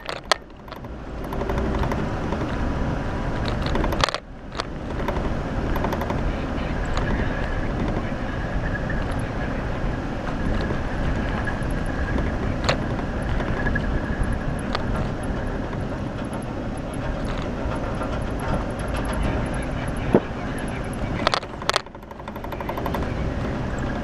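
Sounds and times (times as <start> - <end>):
vehicle engine and tyre noise: 0.0 - 24.0
sharp knocks: 21.2 - 24.0.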